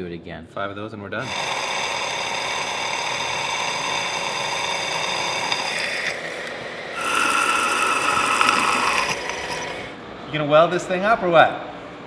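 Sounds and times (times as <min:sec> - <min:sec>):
drill cutting metal: 0:01.2 - 0:10.0
milling machine whine: 0:01.2 - 0:10.0.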